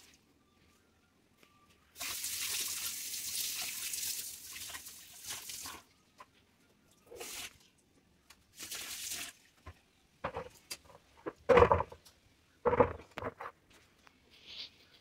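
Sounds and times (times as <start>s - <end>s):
loud knocks: 11.2s - 12.0s.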